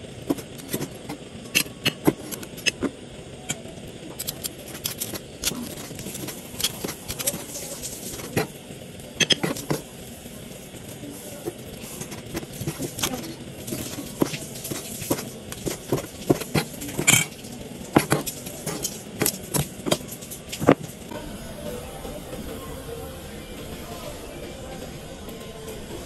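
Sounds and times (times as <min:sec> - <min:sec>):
cleaver chopping on plastic board: 0:18.0 - 0:18.3.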